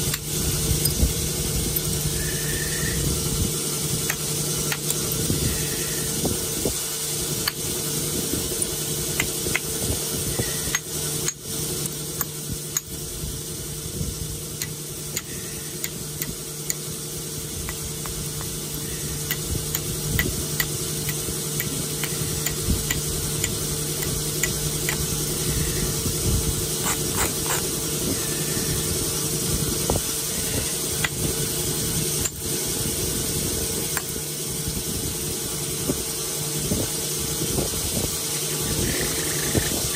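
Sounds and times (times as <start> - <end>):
steady low hum: 0.0 - 39.9
abrader stone grinding stone edge: 4.1 - 6.2, 17.7 - 26.0, 26.7 - 28.8, 38.3 - 39.9.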